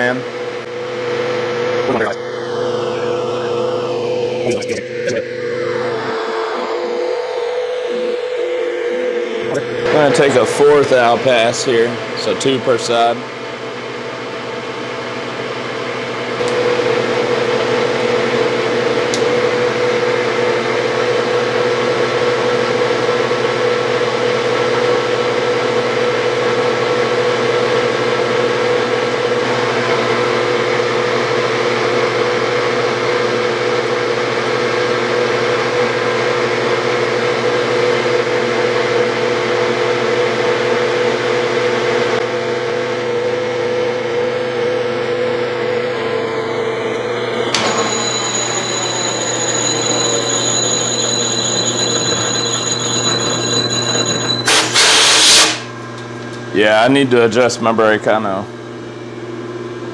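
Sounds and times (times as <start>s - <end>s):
metal lathe humming: 46.9s - 55.6s.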